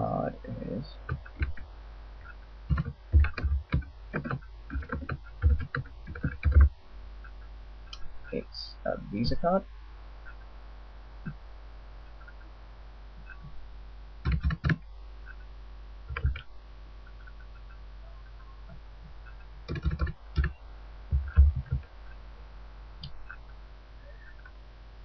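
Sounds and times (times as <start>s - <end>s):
low hum: 0.0s - 25.0s
computer keyboard keystrokes: 1.1s - 1.6s, 2.2s - 6.7s, 14.2s - 15.4s, 16.1s - 16.5s, 19.2s - 21.9s.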